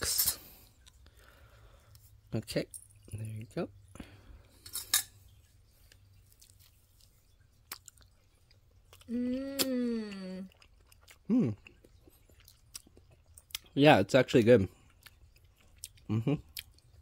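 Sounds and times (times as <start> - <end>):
person humming mmm: 9.0 - 10.6, 11.2 - 11.7, 16.1 - 16.4.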